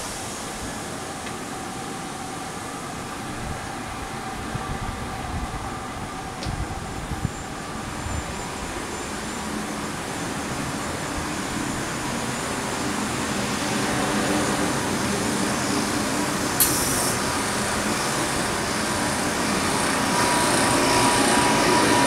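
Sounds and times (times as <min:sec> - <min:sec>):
thin steady whine: 0:00.0 - 0:22.0.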